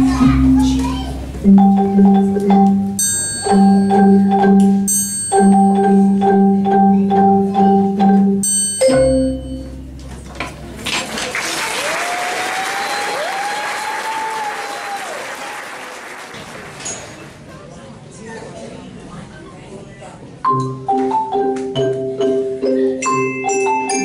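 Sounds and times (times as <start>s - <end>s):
xylophones playing low notes: 0.0s - 10.8s, 20.4s - 24.0s
audience applause: 10.8s - 17.4s.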